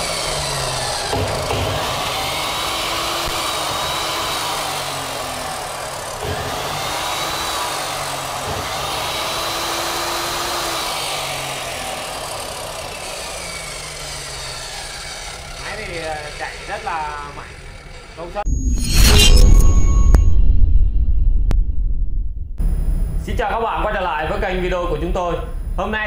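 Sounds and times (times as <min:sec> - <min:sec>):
cut-off saw motor whine: 0:00.0 - 0:20.5.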